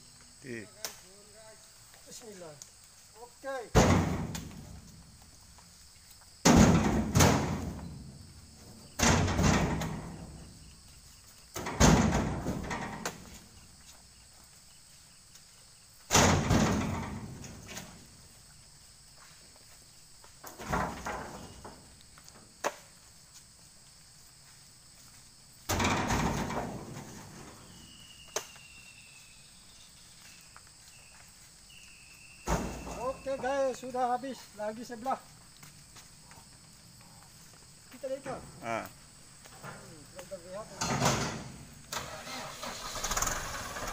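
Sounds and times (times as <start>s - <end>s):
heavy thuds on steel bed: 3.8s - 4.8s, 6.4s - 8.1s, 9.0s - 10.4s.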